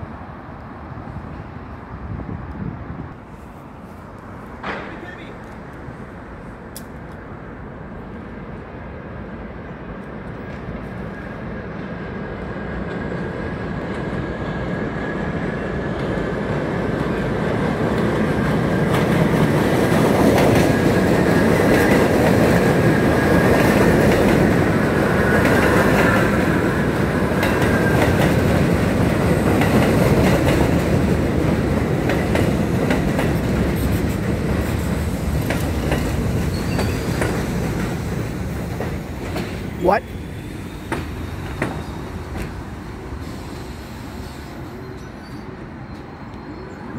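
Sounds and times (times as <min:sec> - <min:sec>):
train rumble: 0:00.0 - 0:46.9
train wheels clattering over rail joints: 0:18.8 - 0:39.8, 0:40.8 - 0:42.6
high squeal: 0:43.2 - 0:46.9.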